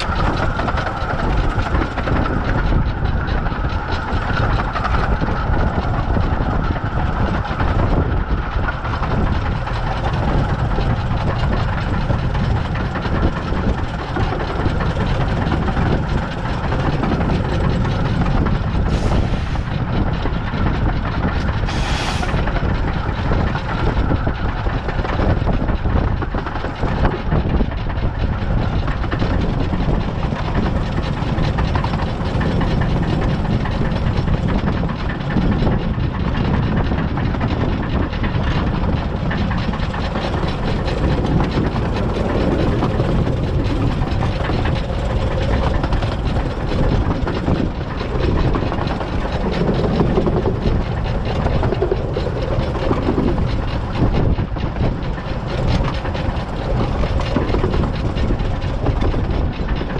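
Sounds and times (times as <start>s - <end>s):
steam locomotive running: 0.0s - 59.9s
wheels on rails: 0.0s - 59.9s
steam hisses: 18.9s - 19.7s, 21.6s - 22.5s.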